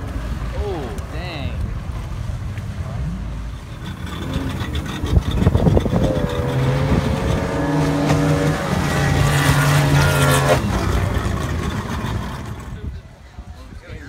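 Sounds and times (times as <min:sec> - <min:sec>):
water splashing: 0:00.0 - 0:13.0
outboard motor running at high speed: 0:03.6 - 0:13.0.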